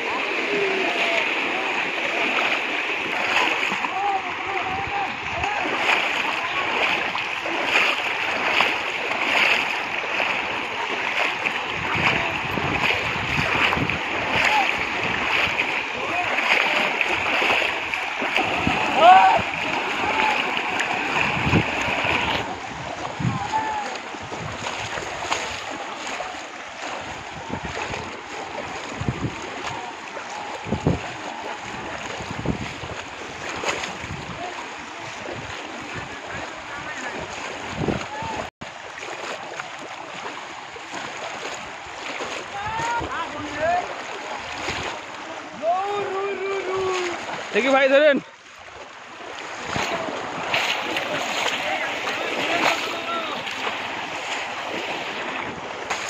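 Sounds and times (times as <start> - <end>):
water sloshing and splashing: 0.0 - 56.0
wind buffeting microphone: 9.8 - 38.5.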